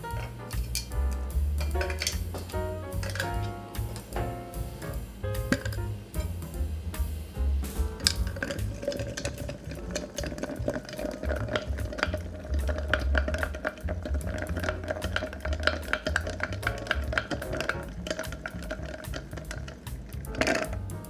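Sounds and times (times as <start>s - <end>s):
ice clinking against glass: 1.6s - 2.2s, 3.0s - 3.5s, 8.0s - 19.7s.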